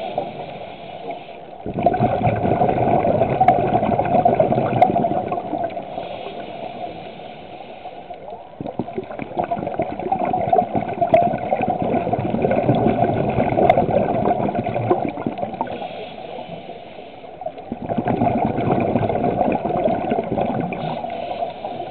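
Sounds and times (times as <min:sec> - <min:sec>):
scuba regulator bubbles underwater: 0:00.0 - 0:21.9.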